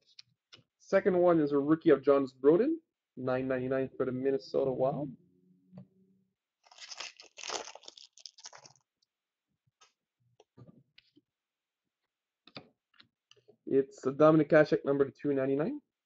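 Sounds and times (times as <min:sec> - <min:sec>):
wrapper being torn and crinkled: 0:06.6 - 0:08.9.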